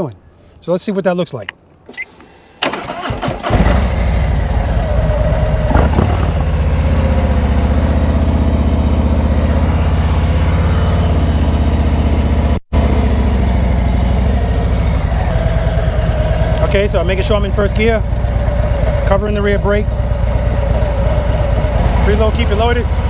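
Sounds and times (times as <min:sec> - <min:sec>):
motorcycle engine idling: 0:03.7 - 0:23.0
clunk: 0:05.7 - 0:06.5.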